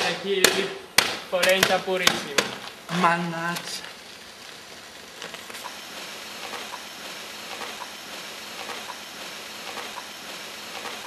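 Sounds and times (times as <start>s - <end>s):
steam hissing from car radiator: 3.9s - 11.0s.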